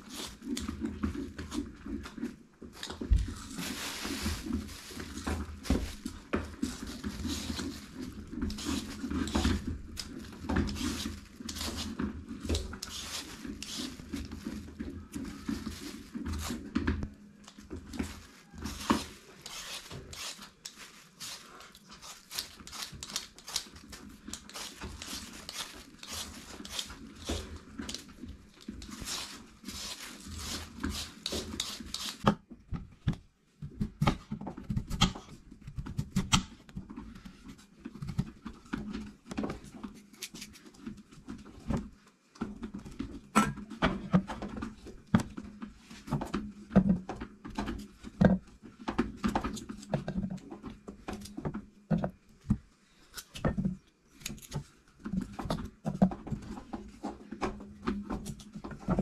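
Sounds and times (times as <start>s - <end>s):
knife scraping potatoes: 0.0s - 32.3s
knife cutting and knocking: 4.2s - 14.6s, 18.6s - 32.4s.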